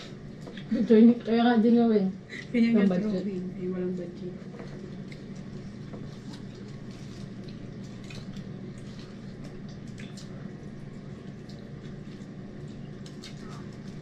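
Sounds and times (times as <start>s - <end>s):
chewing and lip-smacking: 4.5s - 14.0s.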